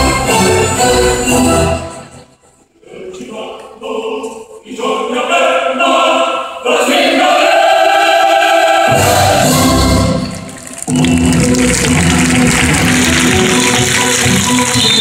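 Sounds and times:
low orchestral accompaniment: 0.0s - 2.4s, 8.9s - 15.0s
operatic singing: 2.8s - 10.7s.

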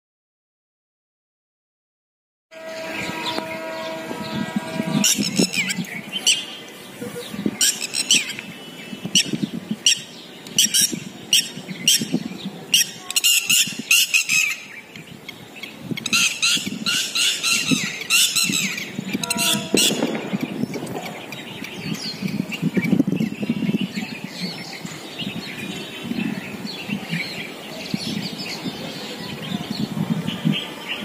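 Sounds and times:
birds squawking and chirping: 2.6s - 31.0s.

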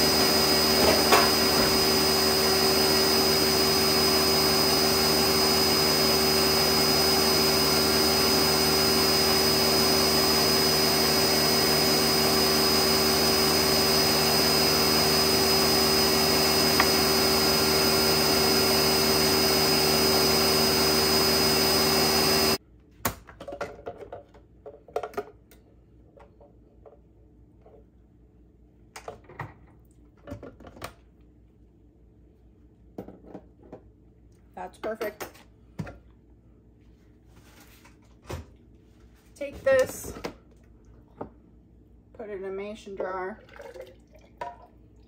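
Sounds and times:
blender motor running: 0.0s - 22.6s.

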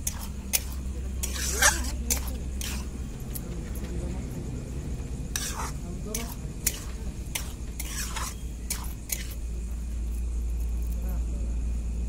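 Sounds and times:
metal spatula scraping a pan: 0.0s - 2.9s, 5.3s - 9.4s
steady low hum: 0.0s - 12.0s.

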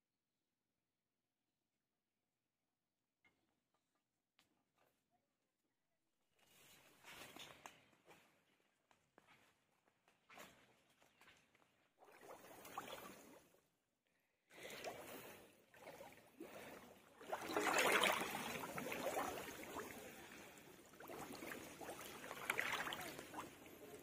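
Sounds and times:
water sloshing around wading legs: 10.3s - 13.6s, 14.6s - 24.0s.

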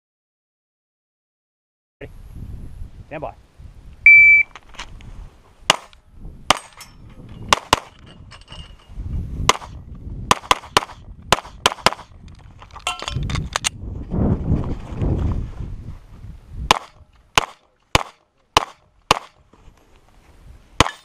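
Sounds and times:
pistol shots: 9.5s - 12.1s, 16.7s - 19.4s
scuffing rumble of movement: 12.4s - 16.5s.

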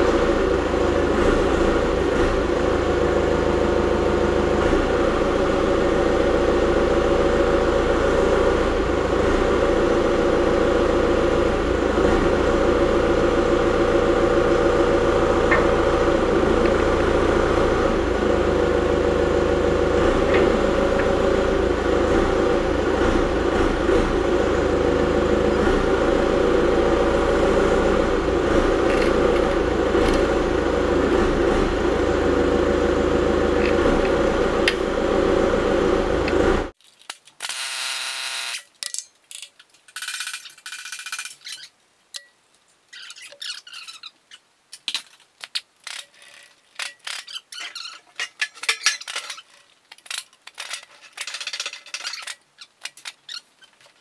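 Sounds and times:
diesel engine idling: 0.0s - 36.8s.

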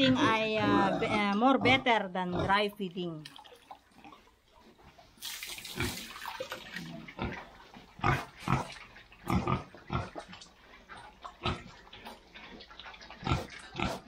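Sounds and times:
pigs slurping wet feed: 3.2s - 14.0s
wet feed poured into trough: 5.2s - 7.0s.

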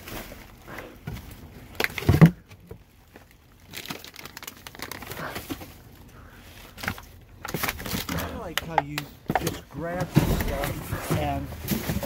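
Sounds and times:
plastic wrapping crinkling: 2.8s - 8.6s
cardboard boxes shuffled: 9.3s - 12.0s.

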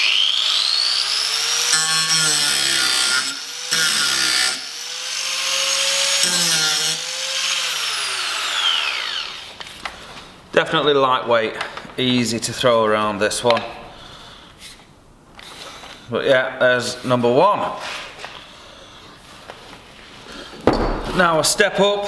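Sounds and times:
angle grinder grinding steel: 0.0s - 9.6s.

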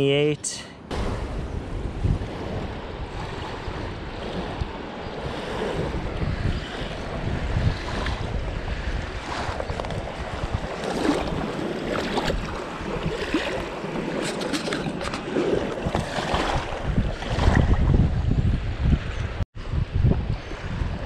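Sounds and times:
small waves lapping: 0.9s - 17.8s
water splashes: 0.9s - 18.0s
wind noise on microphone: 0.9s - 21.0s.

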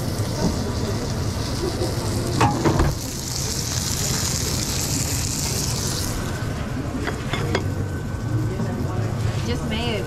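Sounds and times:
burger sizzling on a griddle: 0.0s - 6.6s.

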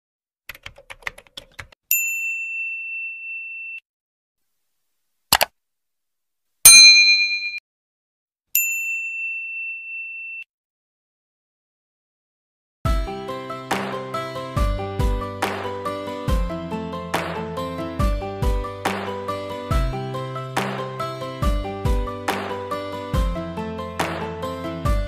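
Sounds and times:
ringing ding: 1.9s - 3.8s, 6.7s - 7.6s, 8.6s - 10.5s
bright bell chime: 6.7s - 7.6s.

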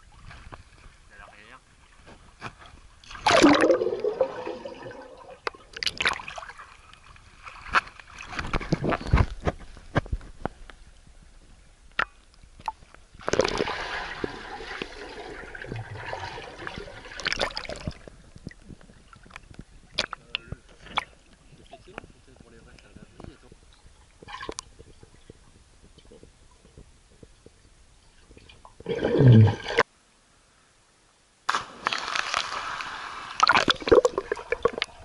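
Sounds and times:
water splashing and sloshing: 0.0s - 11.1s, 12.4s - 22.5s, 31.5s - 35.0s.

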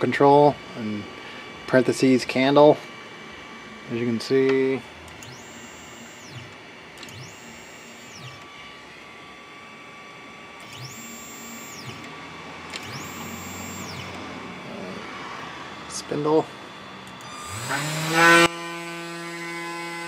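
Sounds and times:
stepper motors whining: 3.5s - 18.8s.

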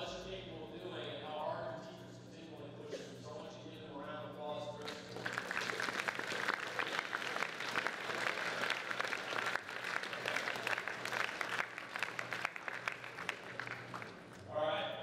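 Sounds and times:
audience clapping: 4.8s - 14.4s.

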